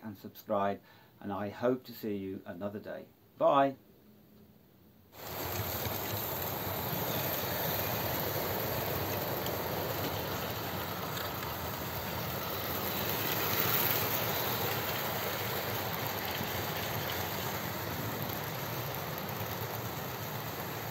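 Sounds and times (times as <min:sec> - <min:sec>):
model train motors whirring: 0:05.2 - 0:20.9
model train wheels rattling on track: 0:05.2 - 0:20.9.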